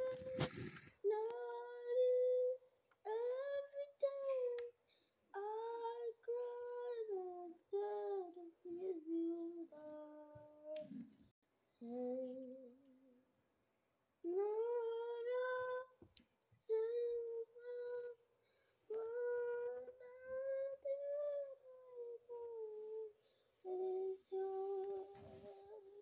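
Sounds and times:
child humming: 18.9s - 26.0s.

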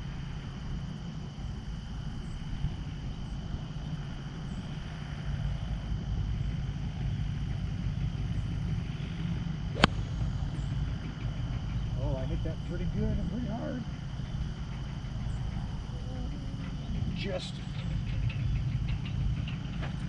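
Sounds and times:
low background rumble: 0.0s - 20.0s
golf club striking ball: 9.7s - 11.4s.

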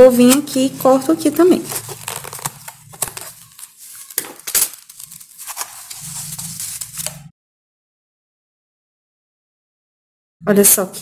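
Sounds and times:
crackly handling of string and cardboard: 0.1s - 7.3s.

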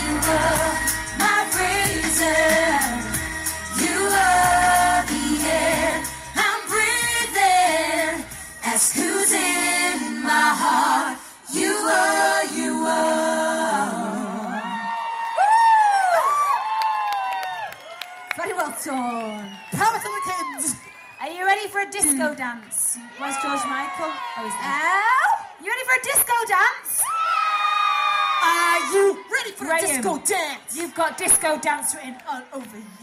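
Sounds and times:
backing track with bass and beat: 0.0s - 9.2s
women singing pop song: 0.0s - 15.0s.

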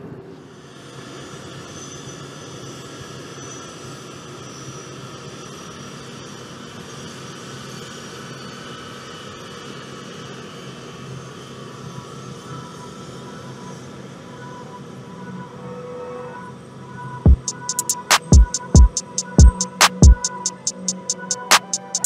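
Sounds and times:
faint high whining tones: 0.0s - 22.0s
jet engines running: 17.3s - 22.0s.

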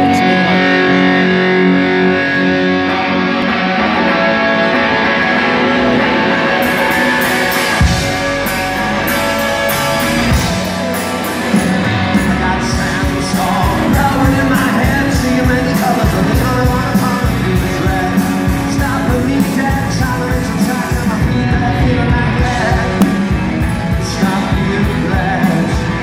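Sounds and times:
guitars ringing: 0.0s - 26.0s
live rock band playing: 0.0s - 26.0s
drums and cymbals: 6.6s - 26.0s.

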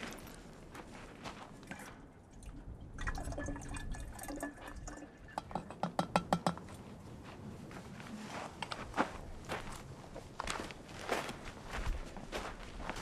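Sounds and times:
water pouring and splashing: 1.7s - 5.7s.

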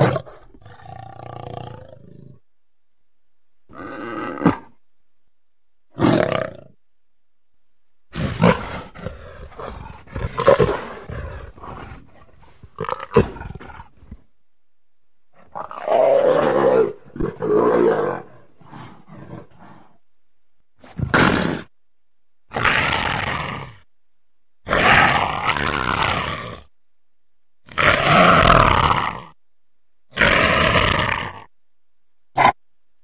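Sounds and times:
leopard snarling and growling: 0.0s - 2.4s, 3.7s - 4.8s, 5.9s - 6.8s, 8.1s - 14.2s, 15.4s - 20.0s, 20.8s - 21.7s, 22.5s - 23.8s, 24.7s - 26.7s, 27.7s - 29.4s, 30.1s - 31.5s, 32.4s - 32.6s.

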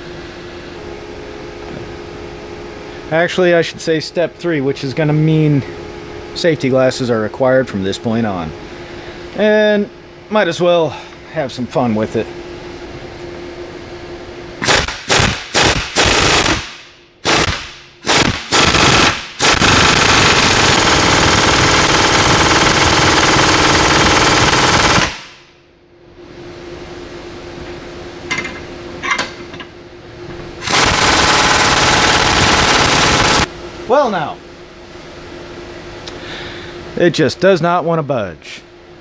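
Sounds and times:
pneumatic impact wrench hammering: 14.6s - 25.4s, 30.6s - 33.5s.

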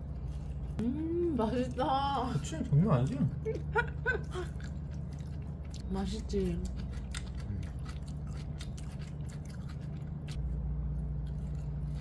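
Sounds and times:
steady low hum: 0.0s - 12.0s
wet crunchy chewing: 4.2s - 12.0s.

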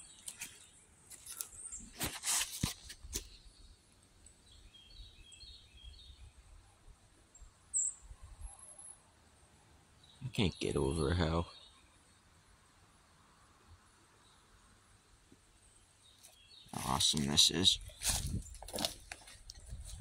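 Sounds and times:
small bird high chirps: 7.4s - 9.0s
footsteps: 16.7s - 20.0s.

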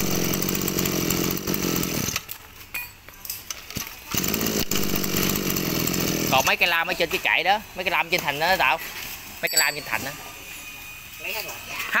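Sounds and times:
brush cutter engine revving: 0.0s - 2.3s, 4.1s - 6.7s.

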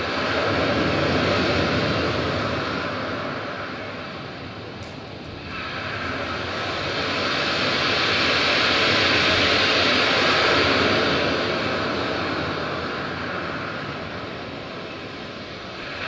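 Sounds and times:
rushing whooshing noise: 5.2s - 16.0s.

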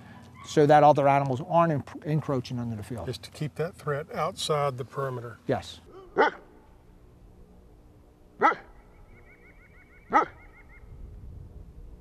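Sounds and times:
dog barking: 5.9s - 6.5s, 8.4s - 8.8s, 10.1s - 10.5s.

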